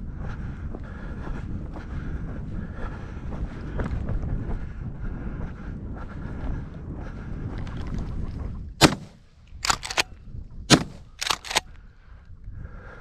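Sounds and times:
wind buffeting microphone: 0.0s - 13.0s
shotgun shots: 8.8s - 10.1s, 10.7s - 11.6s
light sharp cracks: 10.7s - 11.7s.

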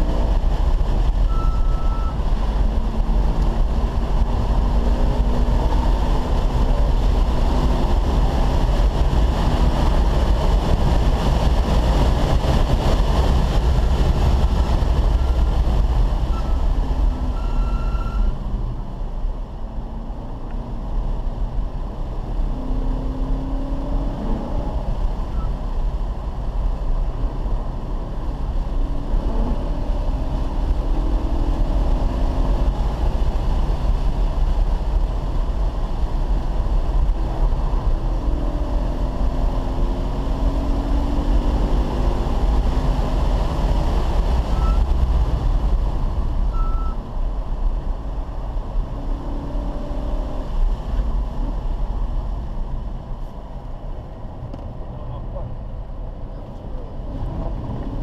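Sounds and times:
car engine revving: 0.0s - 25.6s
wind noise: 0.0s - 58.0s.

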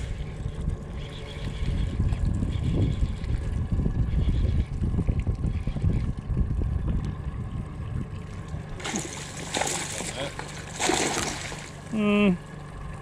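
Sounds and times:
wind buffeting microphone: 0.0s - 9.2s
outboard motor humming: 0.0s - 13.0s.

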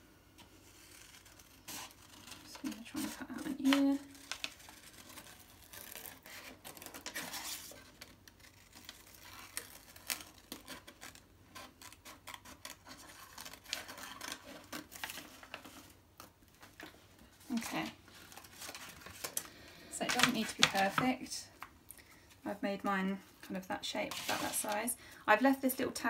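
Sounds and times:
paper rustling: 0.8s - 21.3s, 24.1s - 24.9s
scissors snipping paper: 0.9s - 7.5s.

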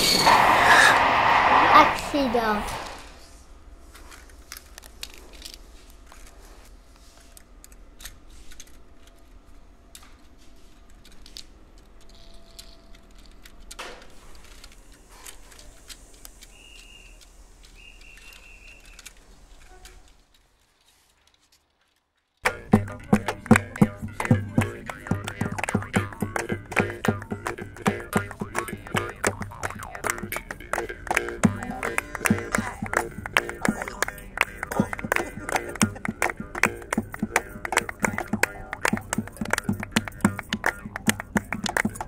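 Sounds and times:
model railway cars clicking: 0.0s - 6.4s, 7.2s - 42.0s
low steady hum: 22.4s - 42.0s
plucked string music: 22.4s - 42.0s.

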